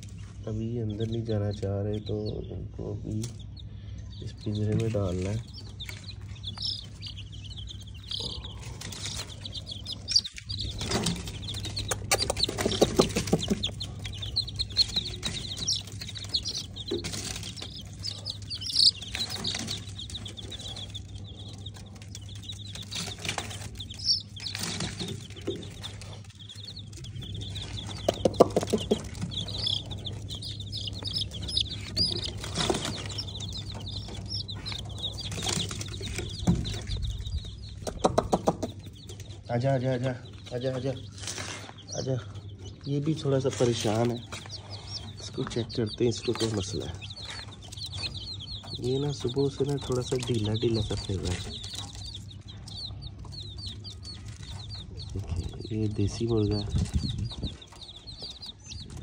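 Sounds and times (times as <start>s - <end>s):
baby chicks peeping: 0.0s - 59.0s
cage knocks and rattles: 8.0s - 21.0s.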